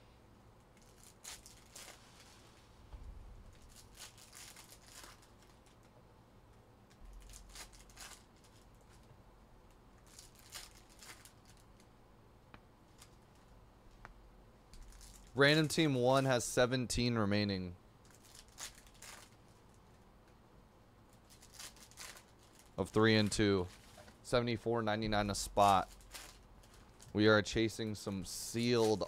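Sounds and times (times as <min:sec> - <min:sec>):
card packaging crinkling: 0:00.8 - 0:02.4, 0:03.5 - 0:05.9, 0:07.0 - 0:09.0, 0:10.0 - 0:11.8, 0:14.8 - 0:15.4, 0:18.1 - 0:19.8, 0:21.1 - 0:24.2, 0:25.1 - 0:27.2.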